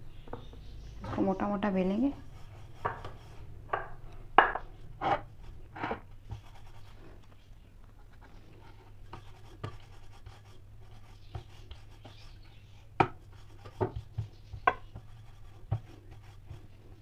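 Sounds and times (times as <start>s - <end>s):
rolling pin on dough: 1.0s - 7.0s, 8.1s - 17.0s
hands rubbing flour on board: 6.3s - 7.1s, 8.2s - 17.0s.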